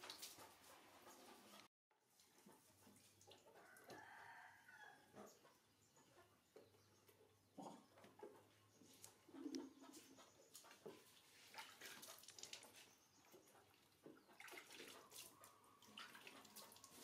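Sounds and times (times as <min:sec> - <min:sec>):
water splashing and dripping: 0:00.0 - 0:03.9, 0:10.5 - 0:17.0.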